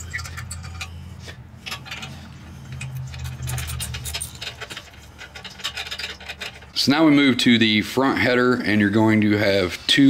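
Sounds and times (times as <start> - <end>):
metal clinks: 1.6 - 6.7.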